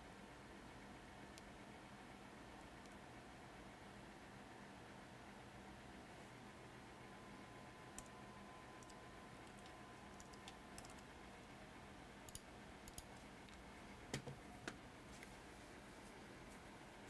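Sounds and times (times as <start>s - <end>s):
faint steady hum: 0.0s - 17.0s
computer keys clicking: 7.9s - 8.2s, 8.8s - 11.1s, 12.2s - 14.4s.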